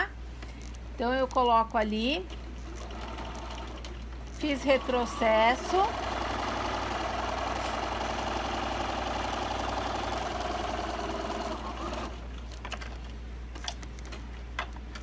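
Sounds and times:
sewing machine stitching: 2.6 - 12.2.

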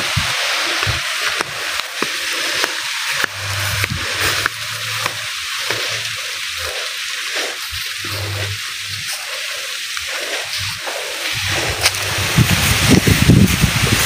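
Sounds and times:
footsteps through dry grass: 0.0 - 14.0.

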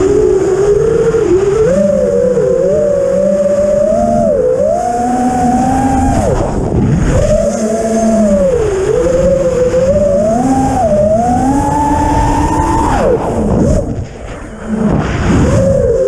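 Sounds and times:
drone motors whining: 0.0 - 16.0.

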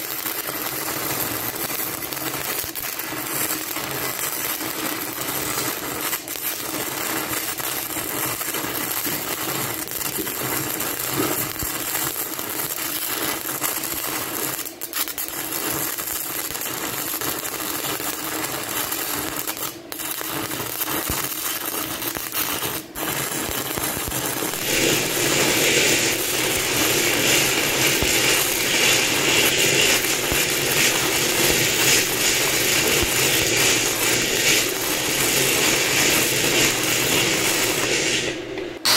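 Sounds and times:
welding arc crackling: 0.0 - 38.9.

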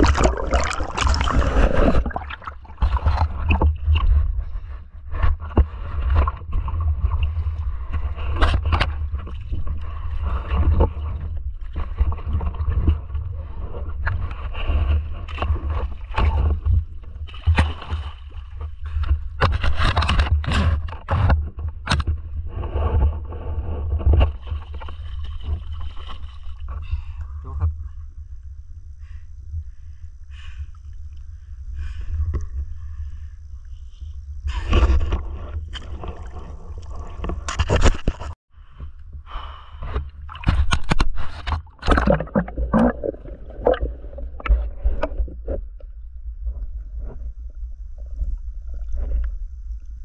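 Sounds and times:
water splashing: 0.0 - 4.0, 40.3 - 45.2
water buffeting microphone: 0.0 - 27.9, 31.4 - 50.0.

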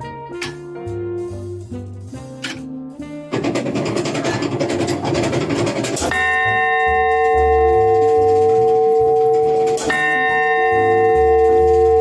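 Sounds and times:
background music: 0.0 - 12.0
bell struck by hammer: 6.1 - 8.5, 9.2 - 12.0.

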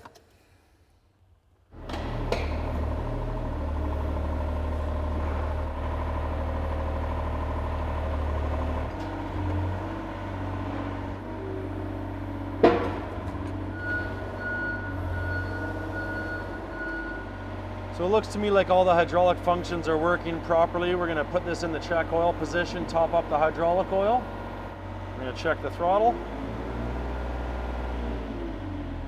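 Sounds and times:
excavator diesel engine running: 1.8 - 29.0
sharp clunk: 1.9 - 2.7, 12.6 - 13.2.

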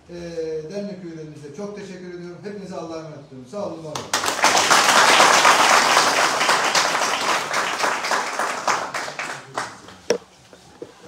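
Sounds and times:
small group applauding: 3.9 - 10.2.

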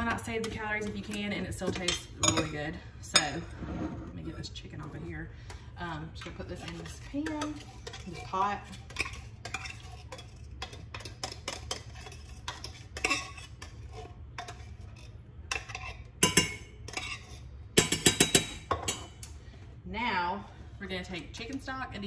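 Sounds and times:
metal saucepan and utensils clinking: 0.0 - 3.6, 6.2 - 19.2
low steady hum: 0.0 - 22.0.

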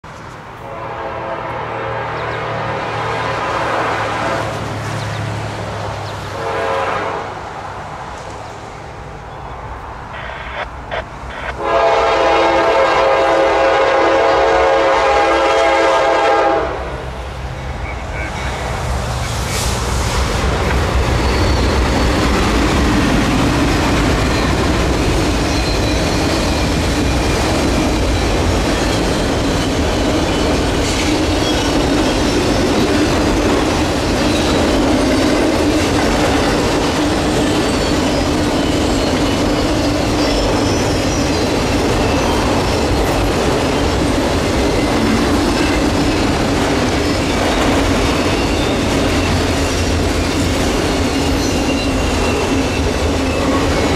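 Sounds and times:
diesel locomotives passing: 0.0 - 53.9
train wheels rumbling on rail: 0.0 - 53.9
clickety-clack over rail joints: 17.8 - 53.9.

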